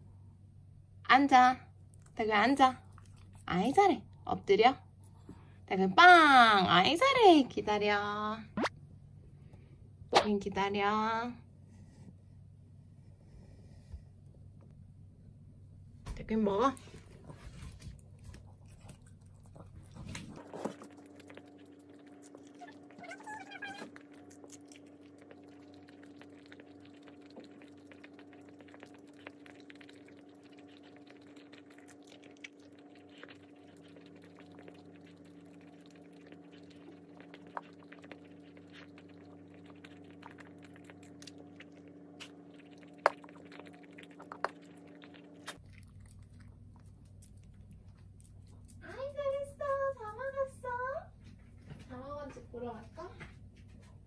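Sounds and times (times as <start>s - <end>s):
steady low hum: 0.0s - 54.0s
dog chewing wet food: 2.8s - 3.5s, 16.8s - 50.5s.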